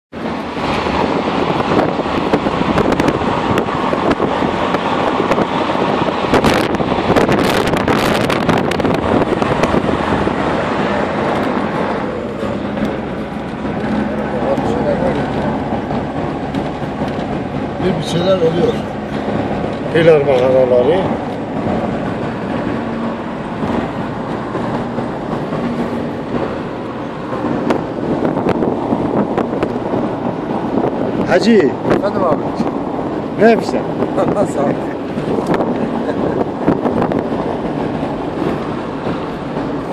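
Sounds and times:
car engine drone: 0.1s - 39.9s
wind buffeting microphone: 0.1s - 39.9s.

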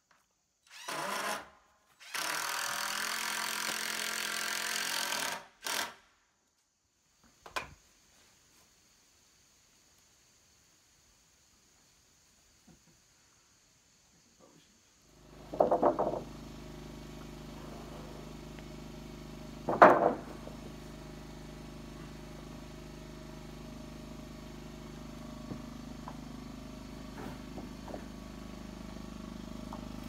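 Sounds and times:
engine hum: 15.1s - 30.0s
wooden boards knocking together: 15.5s - 16.3s, 19.6s - 20.5s.

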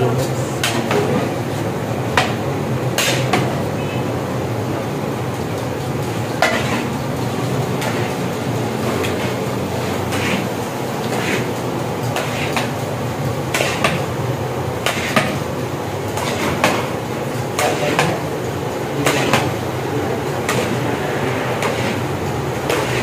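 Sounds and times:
utensil scraping a cooking pot: 6.4s - 7.0s, 7.8s - 12.8s, 13.5s - 14.0s, 14.8s - 15.4s, 16.2s - 18.3s, 19.0s - 23.0s.

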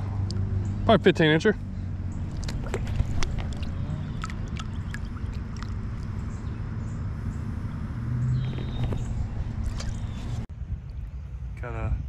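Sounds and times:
wind rumble on microphone: 1.9s - 12.0s
light water splashes and drips: 2.2s - 6.3s.

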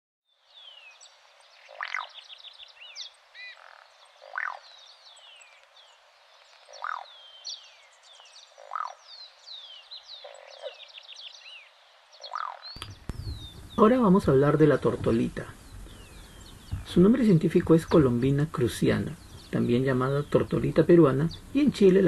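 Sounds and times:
small birds chirping: 0.3s - 22.0s
dove croaking: 1.6s - 2.2s, 3.4s - 4.9s, 6.5s - 7.4s, 8.5s - 9.4s, 10.2s - 11.0s, 12.2s - 22.0s.

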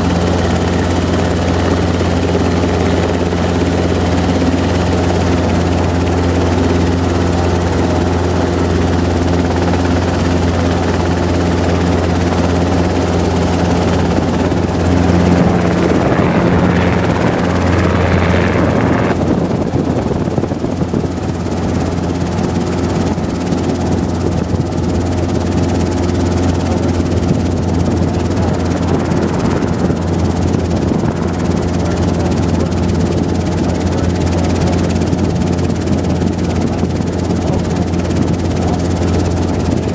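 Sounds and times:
helicopter engine and rotor drone: 0.0s - 39.9s
rushing noise: 13.2s - 19.6s, 27.5s - 32.2s.

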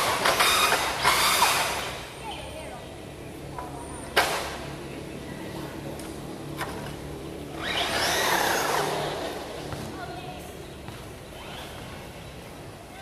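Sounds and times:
rc truck motor and tyres: 0.0s - 2.2s, 5.9s - 9.7s, 11.1s - 12.4s.

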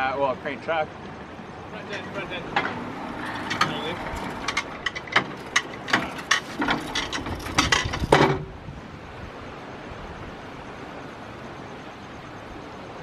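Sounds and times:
crane lifting gear clanking: 1.7s - 8.6s
loud metal knock: 2.5s - 8.5s.

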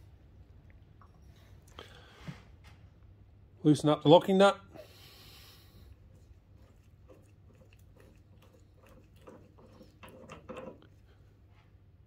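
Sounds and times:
metal nut clicking and scraping: 8.8s - 11.0s.

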